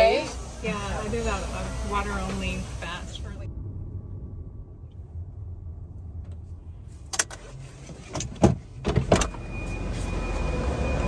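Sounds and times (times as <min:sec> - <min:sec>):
steady hum with high whine: 0:00.0 - 0:08.4
low rumble in car cabin: 0:00.1 - 0:09.4.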